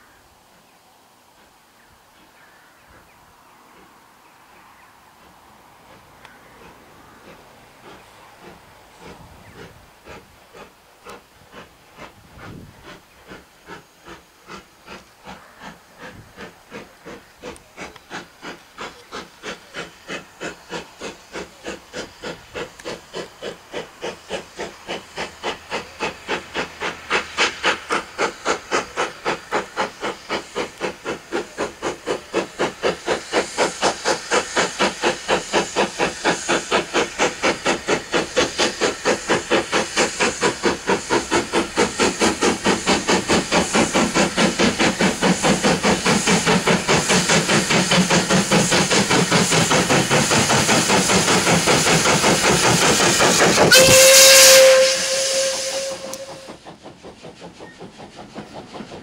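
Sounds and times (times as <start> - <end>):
steam locomotive exhaust beats: 0.0 - 59.0
steam hissing: 1.3 - 59.0.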